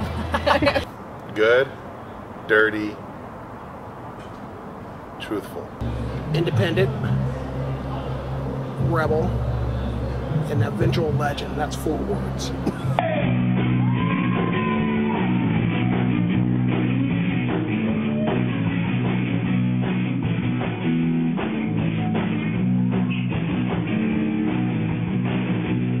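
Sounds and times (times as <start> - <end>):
guitar-led music with bass: 5.8 - 26.0.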